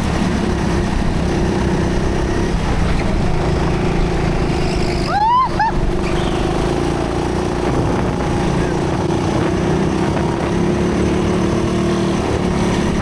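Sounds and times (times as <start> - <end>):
go-kart motor drone: 0.0 - 13.0
tire squeals: 4.2 - 7.3.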